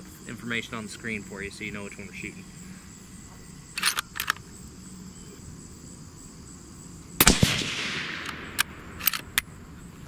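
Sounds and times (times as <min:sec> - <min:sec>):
suppressed rifle shot: 0:07.2 - 0:09.5.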